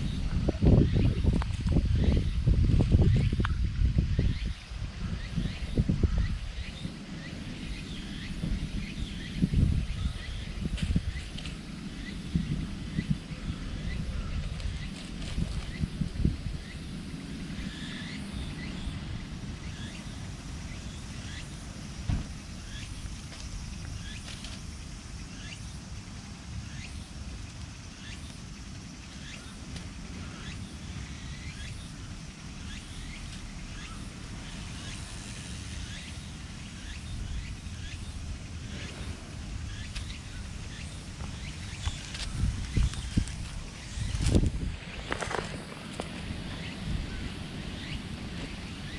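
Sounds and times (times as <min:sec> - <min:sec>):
distant traffic rumble: 0:00.0 - 0:48.9
small birds chirping: 0:00.0 - 0:48.9
dull thump: 0:22.0 - 0:22.4.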